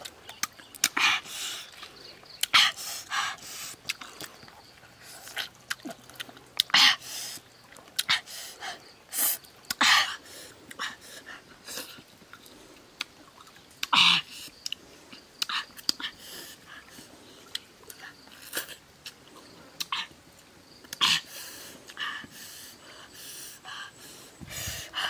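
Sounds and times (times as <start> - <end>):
mouth sounds of eating: 0.0 - 20.2
short breathy puffs: 21.0 - 25.0.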